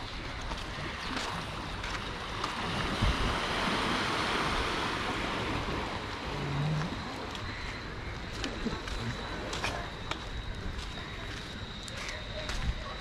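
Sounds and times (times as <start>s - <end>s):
sea waves washing on shore: 0.0s - 11.5s
wind buffeting microphone: 2.4s - 6.0s.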